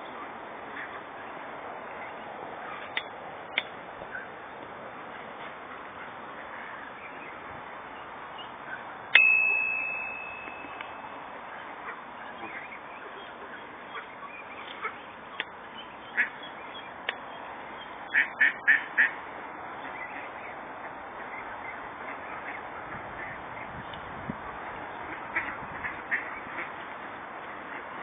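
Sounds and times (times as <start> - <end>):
sharp ringing ding: 9.2 - 11.3
ducks quacking: 11.6 - 15.1, 16.0 - 16.6, 18.1 - 19.2, 25.0 - 26.8
geese honking: 18.1 - 19.2.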